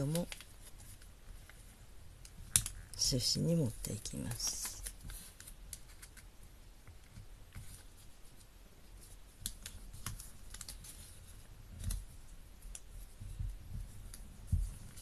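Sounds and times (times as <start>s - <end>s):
paper crackling and clicking: 0.0s - 1.6s, 2.2s - 2.9s, 3.8s - 6.3s, 9.0s - 12.9s.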